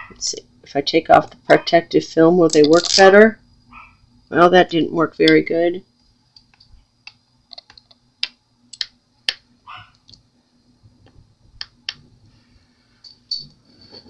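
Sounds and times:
magnets clicking on a surface: 2.5s - 3.1s.

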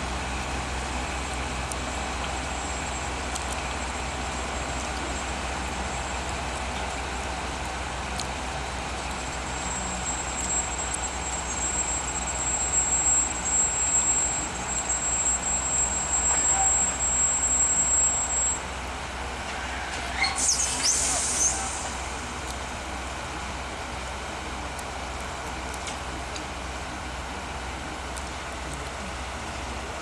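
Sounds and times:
train low hum: 0.0s - 30.0s
high-pitched squeal: 19.5s - 22.1s.

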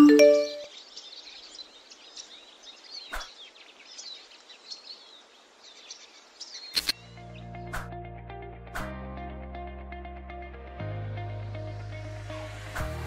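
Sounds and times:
birds chirping: 0.0s - 7.9s
single click: 6.8s - 7.0s.

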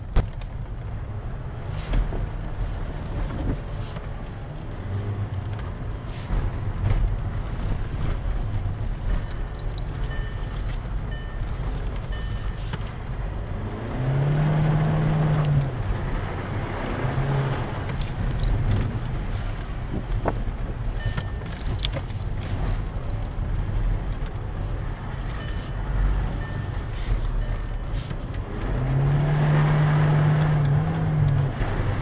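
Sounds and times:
car engine revving: 8.7s - 19.9s, 25.0s - 32.0s.

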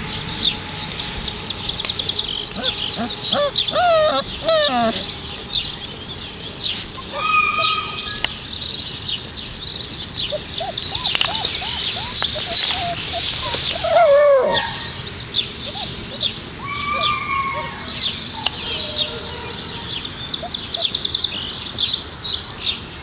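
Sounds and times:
faint birds chirping: 0.0s - 23.0s
puppies yipping: 2.4s - 5.2s, 6.7s - 8.3s, 10.3s - 19.4s
puppy yelp: 2.5s - 5.1s, 7.0s - 8.2s, 10.3s - 14.9s.

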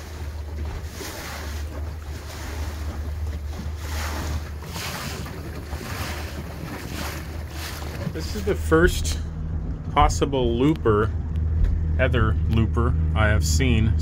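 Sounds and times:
boat motor drone: 0.0s - 14.0s
water washing along hull: 0.0s - 14.0s
wind buffeting microphone: 2.2s - 14.0s.

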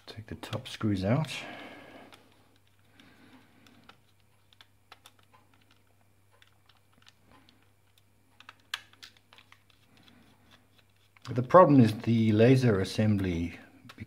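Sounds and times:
plastic mouse body being handled: 2.1s - 14.0s.

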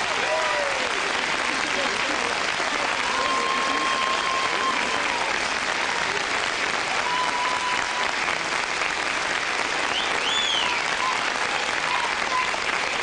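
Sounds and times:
audience applauding and cheering: 0.0s - 13.0s
high whistle: 9.9s - 11.2s.

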